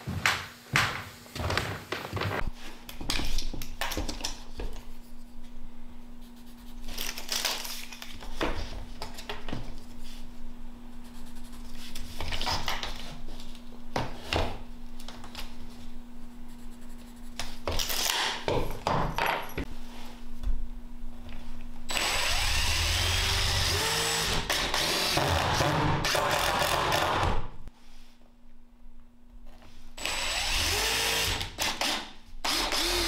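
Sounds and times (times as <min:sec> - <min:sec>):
steady low hum: 0:02.4 - 0:17.7, 0:18.6 - 0:24.5.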